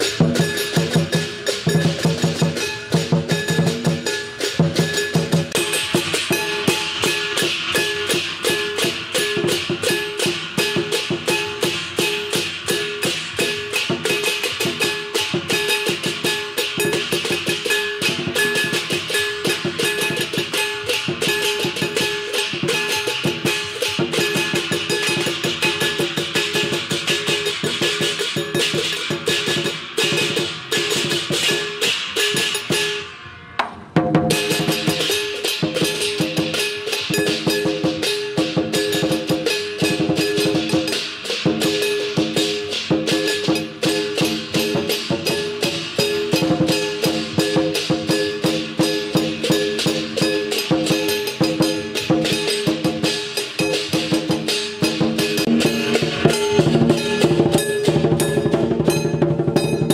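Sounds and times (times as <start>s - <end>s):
drums beaten rapidly: 0.0s - 59.9s
hand cymbals clashing: 0.0s - 59.9s.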